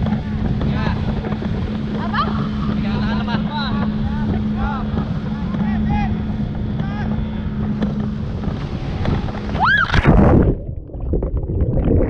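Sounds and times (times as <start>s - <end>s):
loud splash: 9.4s - 12.0s
muffled underwater bubbling: 9.6s - 12.0s.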